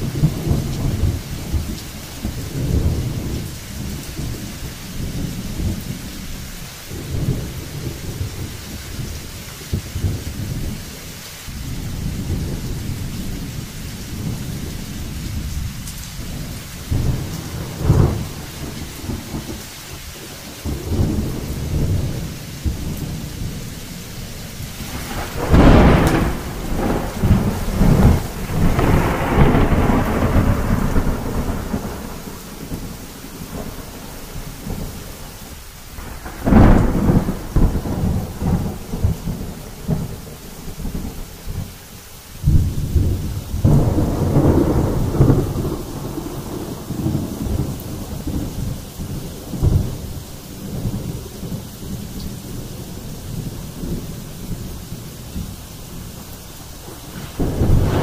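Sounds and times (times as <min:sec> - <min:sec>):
thunder rumbling: 0:00.0 - 0:41.8, 0:42.4 - 0:58.0
rain hiss: 0:00.0 - 0:58.0
loud thunder clap: 0:24.7 - 0:34.0, 0:36.0 - 0:41.2, 0:42.4 - 0:51.6, 0:56.8 - 0:58.0.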